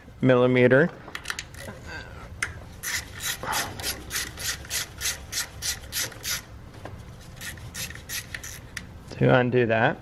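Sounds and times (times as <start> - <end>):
ratchet wrench rasping: 2.8 - 6.5, 7.4 - 8.9.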